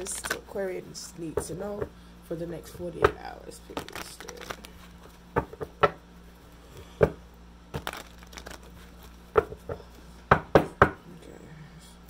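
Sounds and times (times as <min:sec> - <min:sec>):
cards being shuffled: 0:00.0 - 0:00.5, 0:03.6 - 0:05.7, 0:07.7 - 0:09.7.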